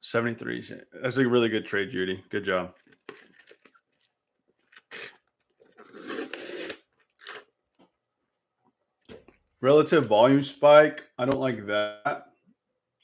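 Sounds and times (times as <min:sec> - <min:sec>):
man crunching and chewing: 0:02.8 - 0:07.8.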